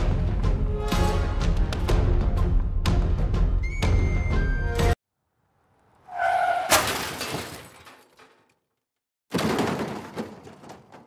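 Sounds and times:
crash with shattering: 6.6s - 8.5s, 9.3s - 11.0s.

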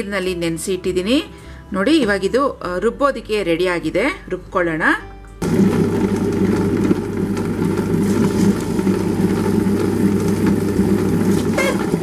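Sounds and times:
wet grinder motor humming: 5.4s - 12.0s.

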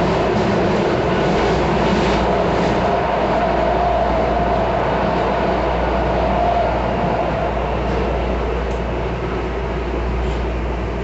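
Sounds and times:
train wheels rumbling: 0.0s - 11.0s
train whine: 0.0s - 11.0s.

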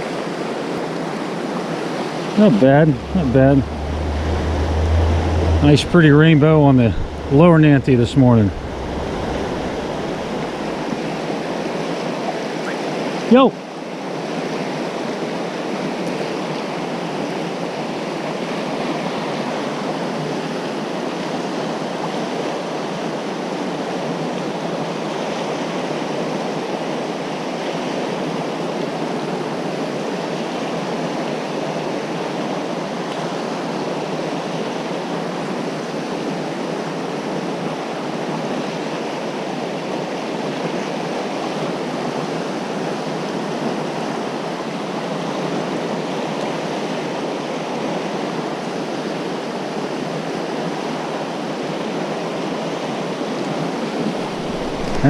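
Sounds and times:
river rushing over rapids: 2.1s - 13.2s, 54.2s - 55.0s.

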